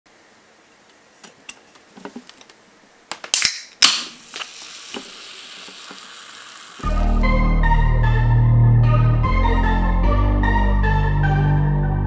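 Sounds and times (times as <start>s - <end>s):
can tab cracking open: 3.1s - 6.8s
gas hissing from can: 3.3s - 7.0s
soft fizzing: 4.3s - 6.8s.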